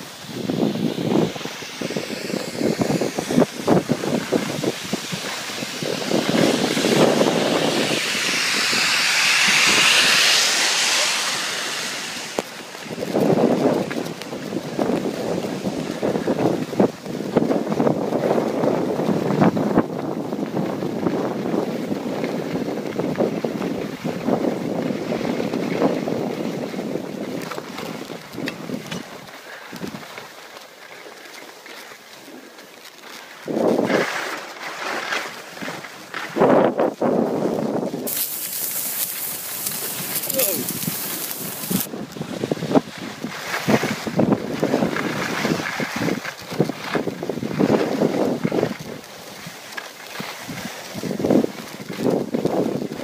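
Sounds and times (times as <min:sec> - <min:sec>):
loud broad hiss: 0:00.0 - 0:13.6, 0:38.0 - 0:41.9
wind buffeting microphone: 0:00.0 - 0:30.1, 0:35.6 - 0:49.6, 0:50.2 - 0:53.0
skis scraping over packed snow: 0:00.0 - 0:53.0.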